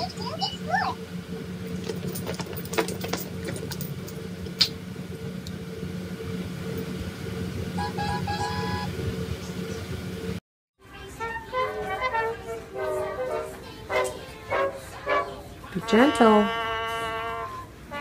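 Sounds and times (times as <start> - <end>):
low mechanical hum: 0.0 - 18.0
high notes: 11.2 - 18.0.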